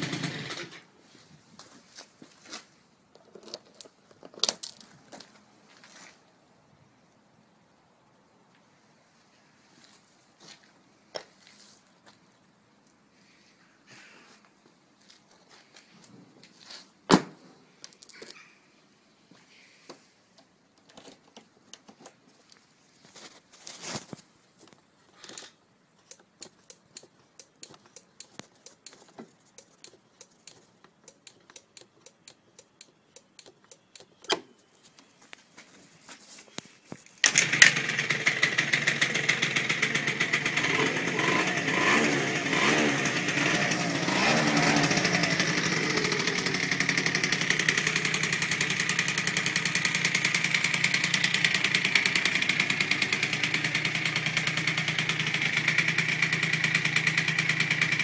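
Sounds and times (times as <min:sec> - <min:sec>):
scooter engine starting and idling: 0:00.0 - 0:00.9, 0:37.2 - 0:58.0.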